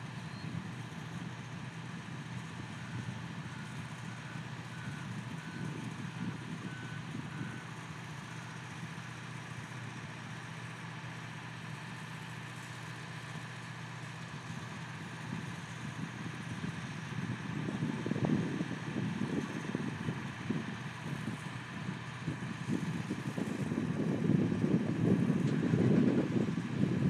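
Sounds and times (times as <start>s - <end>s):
low engine hum: 0.0s - 27.0s.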